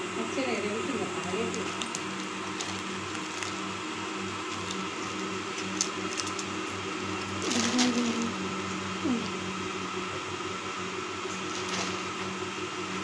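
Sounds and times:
steady mechanical hum: 0.0s - 13.0s
plastic chips packet crinkling: 1.2s - 8.4s.

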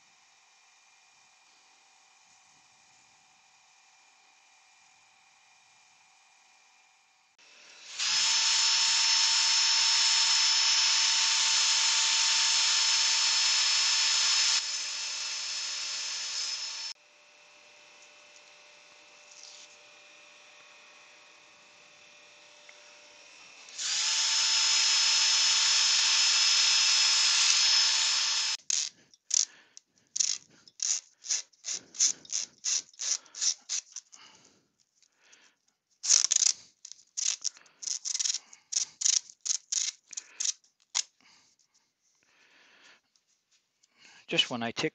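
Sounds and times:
cordless drill sanding whine: 7.4s - 28.6s
short rubbing strokes: 30.2s - 34.2s.

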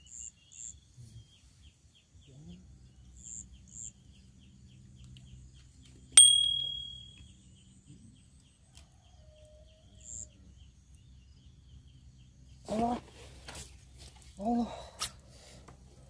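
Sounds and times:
bite bell ding: 6.2s - 7.2s
short high chirps: 6.2s - 7.2s.

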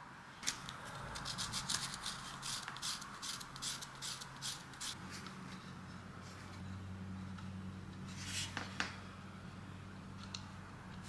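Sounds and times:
sandpaper rubbing strokes: 1.2s - 5.0s.

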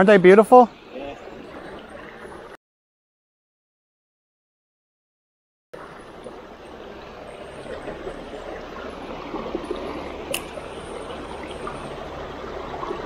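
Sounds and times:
creek babbling over rocks: 5.8s - 13.0s
sharp click: 10.3s - 10.6s.

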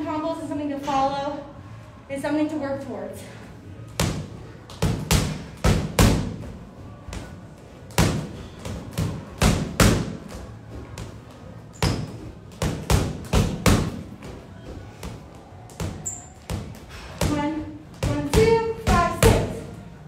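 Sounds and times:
gloves thudding on punching bag: 4.0s - 6.5s, 7.9s - 11.1s, 11.8s - 14.4s.

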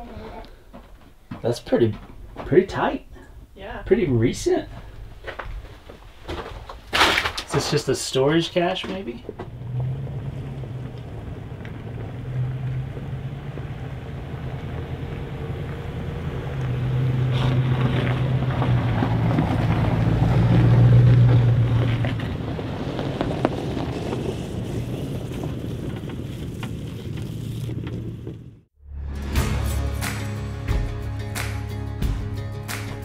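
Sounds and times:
road and wind noise: 0.7s - 28.7s
vehicle engine hum: 8.6s - 29.0s.

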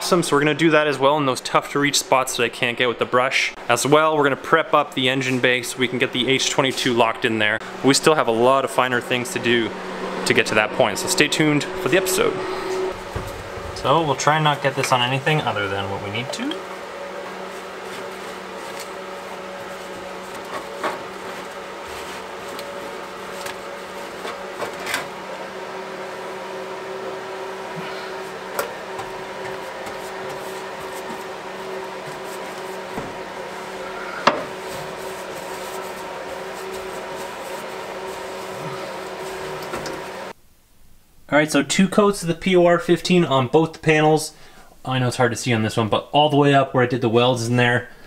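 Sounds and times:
electrical hum: 0.0s - 48.0s
paintbrush brushing on metal: 17.2s - 24.3s, 29.4s - 33.8s, 34.6s - 39.7s.

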